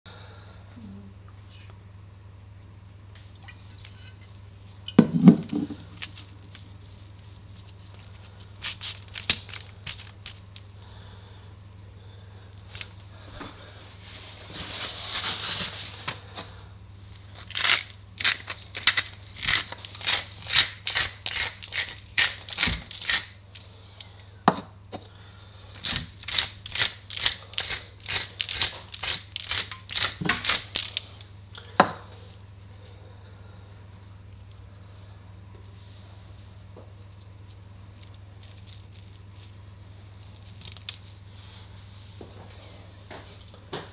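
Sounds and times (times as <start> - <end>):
pepper mill grinding: 3.8 - 13.0, 17.2 - 24.2, 25.7 - 31.3, 36.9 - 41.2.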